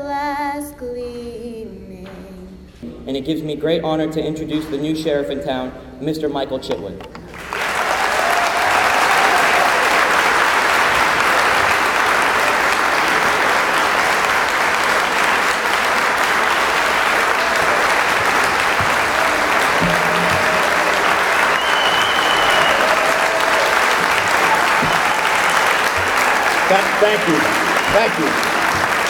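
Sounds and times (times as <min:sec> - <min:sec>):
audience applauding: 0:07.3 - 0:29.0.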